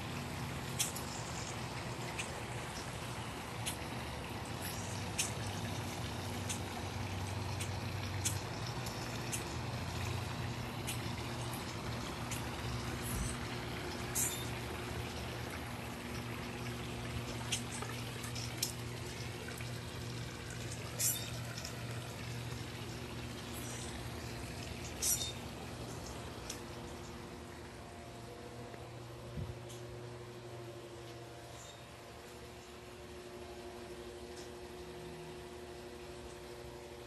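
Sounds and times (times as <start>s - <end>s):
running water rushing: 0.0s - 29.3s
low steady hum: 0.0s - 37.0s.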